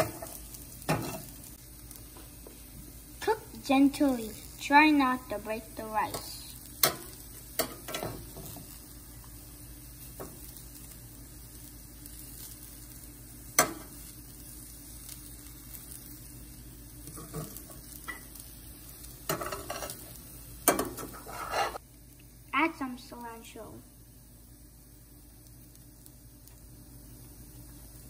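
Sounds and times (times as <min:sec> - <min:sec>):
fried rice sizzling in a pan: 0:00.0 - 0:28.0
metal spatula scraping a pan: 0:19.3 - 0:20.0, 0:20.7 - 0:21.8.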